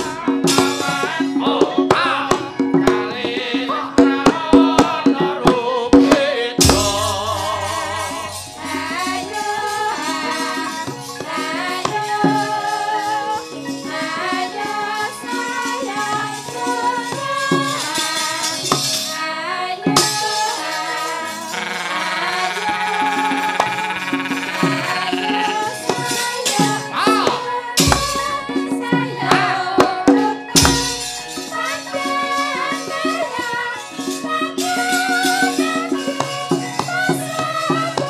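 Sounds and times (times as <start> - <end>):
gamelan ensemble playing: 20.0 - 28.5.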